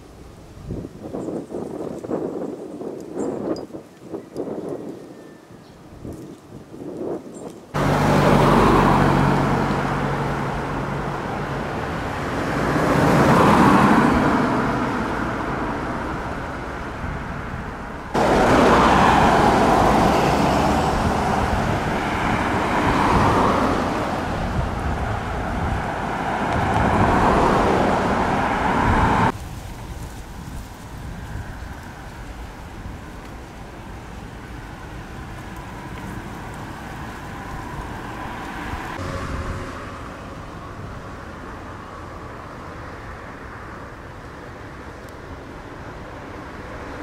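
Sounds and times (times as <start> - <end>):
cars driving past: 7.7 - 29.4, 31.2 - 47.0.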